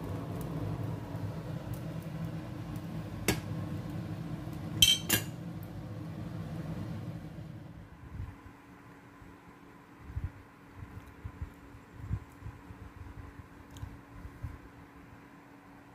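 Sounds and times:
steady low hum: 0.0 - 15.9
kitchenware knocking and clinking: 4.8 - 5.4.

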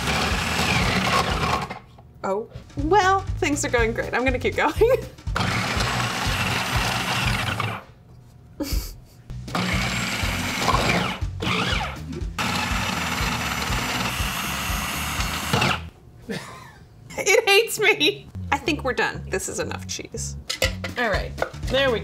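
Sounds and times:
food processor grating cheese: 0.0 - 1.8, 5.4 - 7.9, 9.5 - 15.9.

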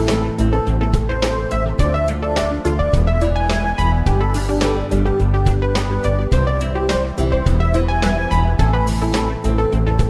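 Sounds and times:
melody over sustained bass: 0.0 - 10.0.

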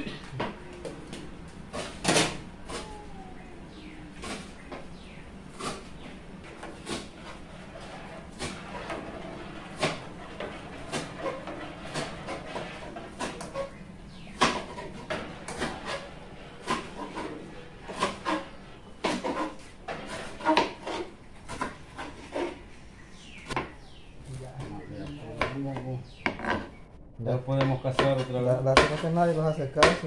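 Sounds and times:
metal spoon scraping a pot: 6.7 - 13.8.

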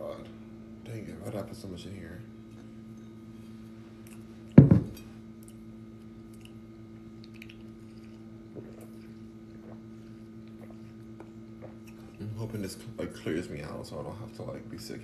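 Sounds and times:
man sipping through a straw: 7.4 - 12.2.

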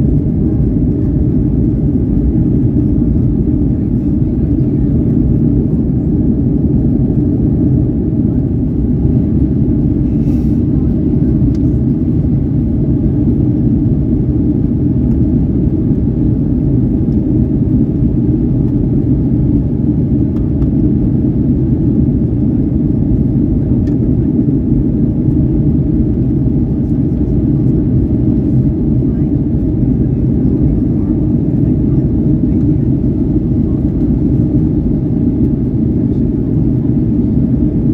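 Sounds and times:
airplane cabin engine rumble: 0.0 - 37.9.

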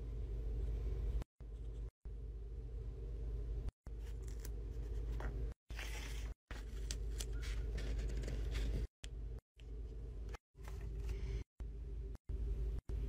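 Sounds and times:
steady low hum: 0.0 - 13.0
paper being handled: 4.0 - 8.9.

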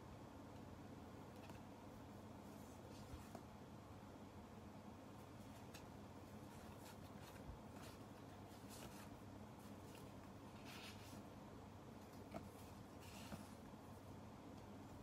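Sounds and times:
paper rustling: 5.4 - 11.3.

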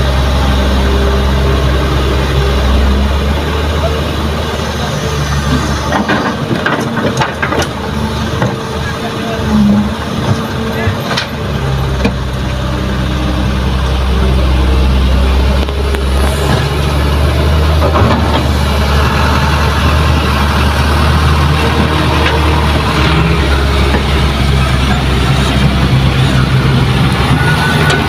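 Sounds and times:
diesel engines humming: 0.0 - 28.0.

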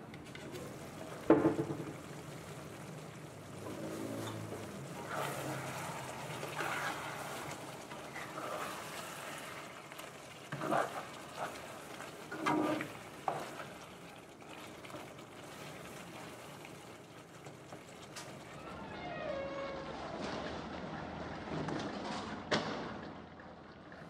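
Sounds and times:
chicken sizzling in sauce: 0.4 - 18.6
spatula scraping a pan: 3.8 - 13.6.

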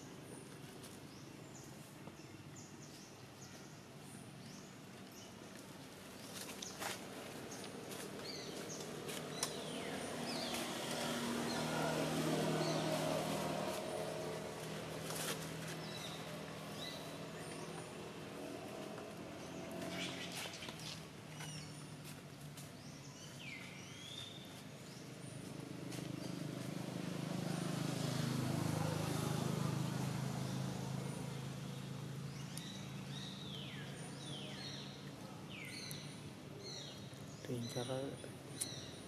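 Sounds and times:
bird chirping: 6.2 - 22.2.

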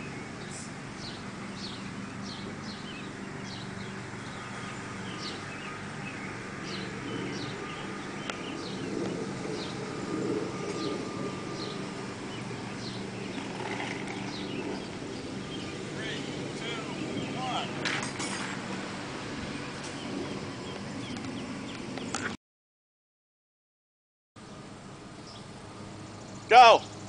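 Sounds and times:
bird chirping: 0.0 - 17.8, 24.4 - 27.0.

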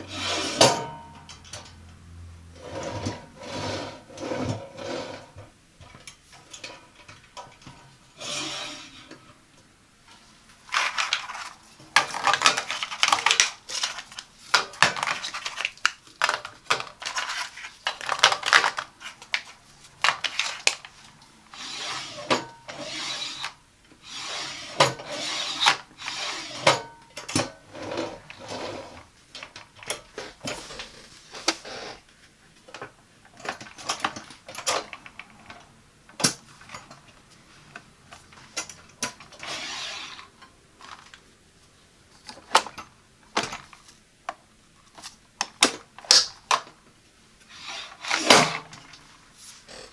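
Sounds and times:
drawer sliding on rails: 0.0 - 1.7, 2.5 - 5.5, 7.6 - 9.3, 21.5 - 29.1, 38.4 - 40.4, 47.5 - 48.9.

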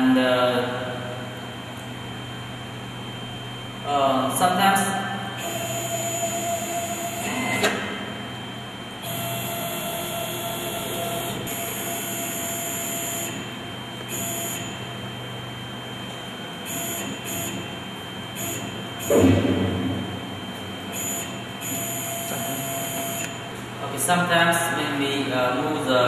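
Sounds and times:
steady low hum: 0.0 - 26.0
stepper motor whine: 5.4 - 23.6.

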